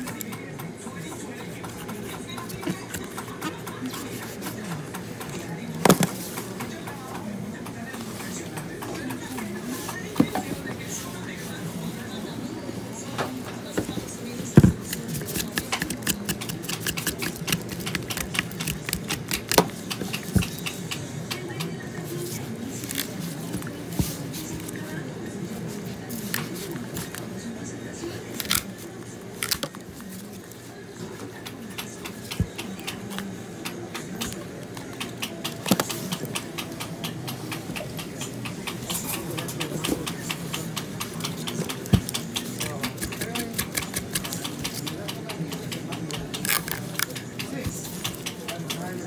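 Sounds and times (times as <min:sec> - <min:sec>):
knife scraping coconut shell: 0:14.7 - 0:20.9, 0:40.7 - 0:45.2.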